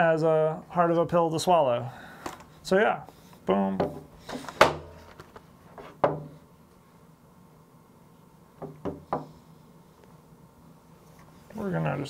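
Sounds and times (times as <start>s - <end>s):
knocks on wooden workbench: 6.0s - 6.4s, 8.6s - 9.3s.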